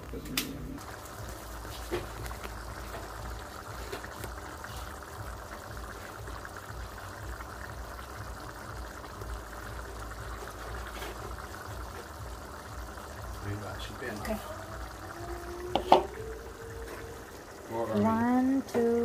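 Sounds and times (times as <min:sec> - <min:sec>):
sauce bubbling and spluttering: 0:00.0 - 0:18.0
low constant rumble: 0:00.0 - 0:19.0.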